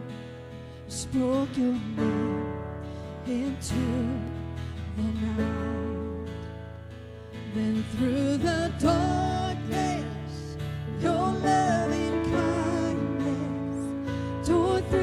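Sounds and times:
acoustic guitar: 0:00.0 - 0:15.0
keyboard: 0:00.0 - 0:15.0
voices singing: 0:09.1 - 0:15.0.

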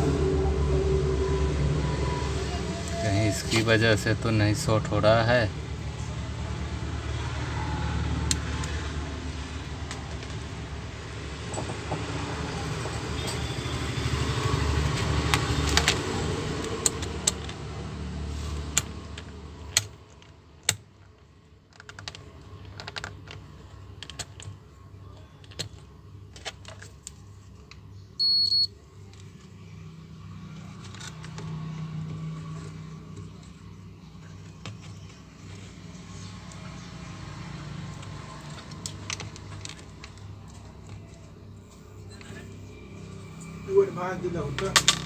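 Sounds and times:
multimeter beep: 0:28.2 - 0:28.7.

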